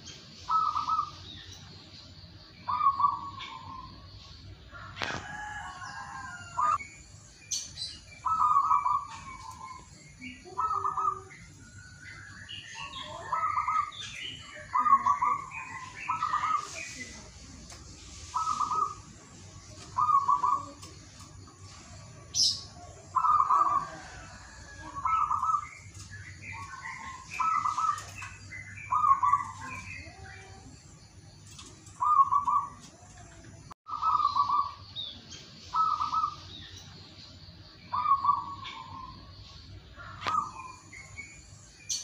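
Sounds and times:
small birds chirping: 0:00.0 - 0:42.0
dove cooing: 0:00.5 - 0:01.2, 0:02.7 - 0:03.9, 0:08.2 - 0:11.5, 0:12.8 - 0:17.0, 0:18.3 - 0:19.1, 0:19.8 - 0:21.0, 0:22.3 - 0:30.7, 0:31.6 - 0:34.8, 0:35.7 - 0:36.4.

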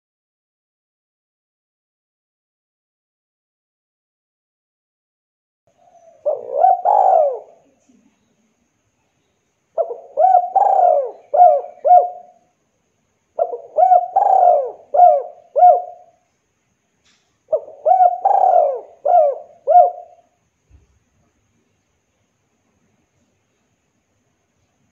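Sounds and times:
dove cooing: 0:05.8 - 0:07.8, 0:09.8 - 0:12.4, 0:13.4 - 0:16.2, 0:17.5 - 0:20.4.

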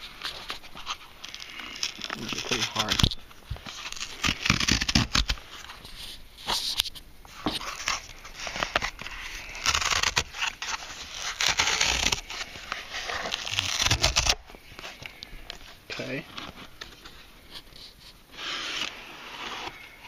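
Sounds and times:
cardboard ripping: 0:00.0 - 0:14.6.

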